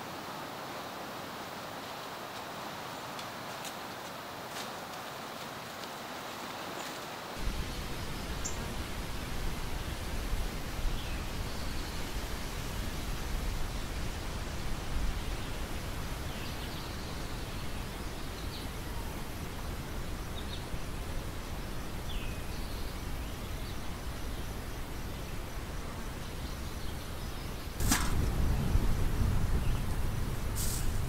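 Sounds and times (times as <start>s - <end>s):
wind rumble on microphone: 7.4s - 31.0s.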